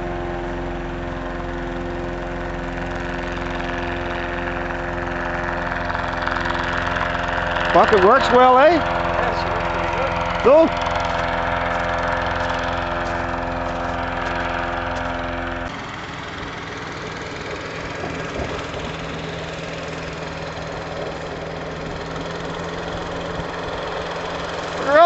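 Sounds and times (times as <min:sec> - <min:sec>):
hovercraft engine running: 0:00.0 - 0:25.0.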